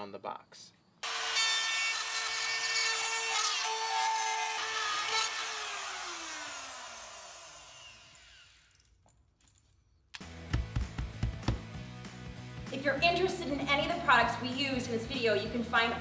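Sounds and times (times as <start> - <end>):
rotary tool routing drywall: 1.0 - 8.9
rotary tool spinning down: 3.3 - 9.0.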